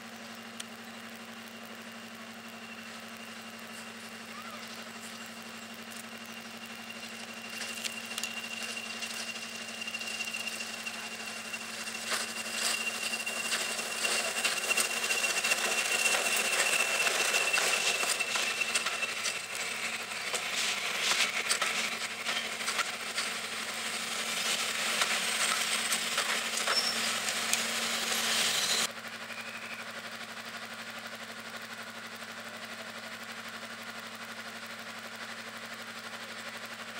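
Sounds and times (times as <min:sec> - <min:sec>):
high engine whine: 0:00.0 - 0:30.2
diesel locomotive engine: 0:00.0 - 0:36.9
diesel engine idling: 0:02.8 - 0:28.8
wheels clattering over rail joints: 0:07.0 - 0:28.9.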